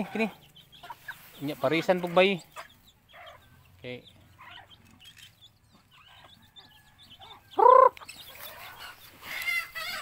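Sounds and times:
chickens calling softly: 0.0 - 10.0
loud chicken call: 7.3 - 10.0.

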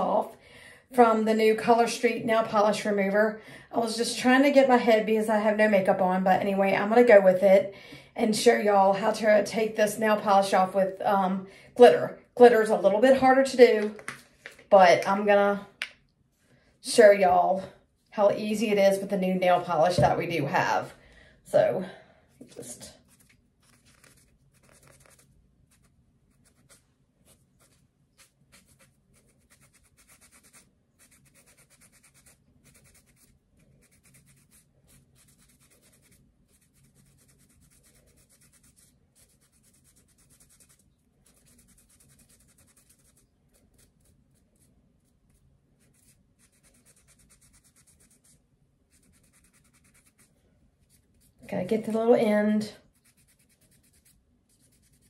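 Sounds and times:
cotton ball scratching fingernail: 23.1 - 51.4, 52.9 - 55.0.

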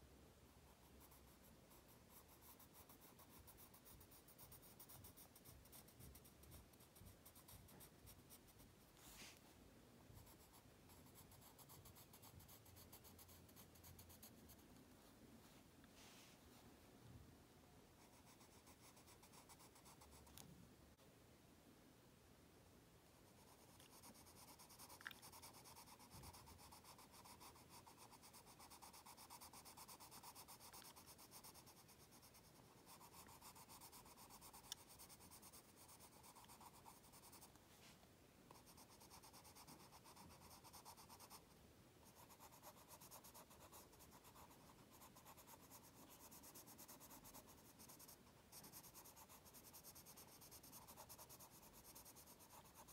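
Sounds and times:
coloured pencil scratching on card: 0.7 - 9.4, 10.2 - 14.7, 18.0 - 20.4, 23.2 - 37.6, 38.5 - 52.9.

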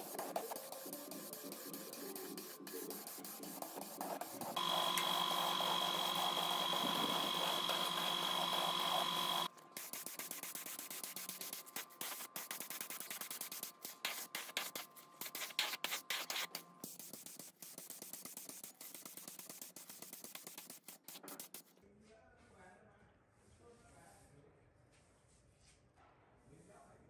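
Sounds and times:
paint spray gun hissing: 0.0 - 20.7.

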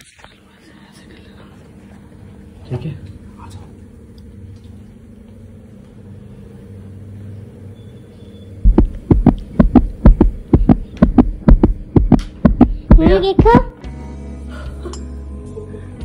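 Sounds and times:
low steady hum: 0.0 - 13.9
fast loud thumps: 8.6 - 13.7.

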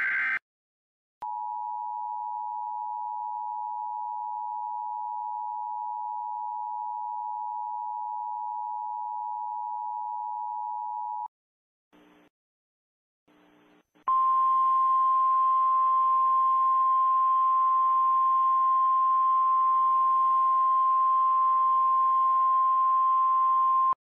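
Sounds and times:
loud steady electronic tone: 0.0 - 0.4.

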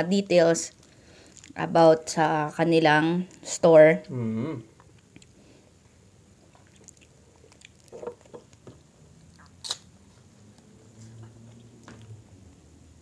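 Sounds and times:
people chewing food: 0.7 - 1.8, 3.2 - 12.7
lip smacks: 6.4 - 12.2.

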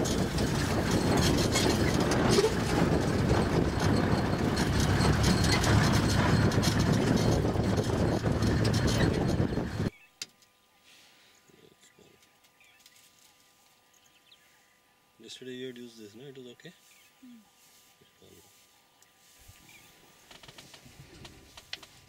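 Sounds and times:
off-road vehicle engine rumbling: 0.0 - 9.9
vehicle body rattling over bumps: 0.0 - 9.9.

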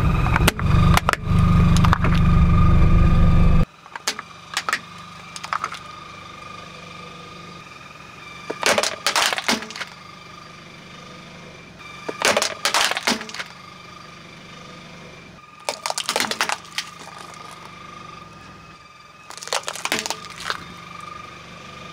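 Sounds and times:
plastic toys cracking under tyre: 0.4 - 2.3, 3.8 - 5.9, 8.5 - 10.0, 12.1 - 13.6, 15.6 - 17.8, 19.3 - 21.1.

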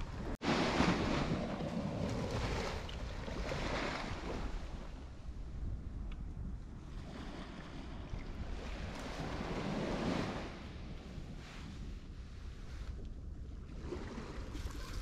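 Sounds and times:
wind rumble on microphone: 0.0 - 15.0
ocean surf washing on beach: 0.4 - 5.0, 7.1 - 12.7.

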